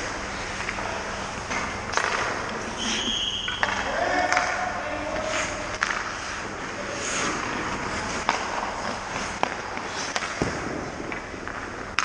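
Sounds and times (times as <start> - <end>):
stick cracking puck: 1.9 - 2.4, 5.7 - 6.5, 7.2 - 12.0
skates scraping ice: 1.9 - 12.0.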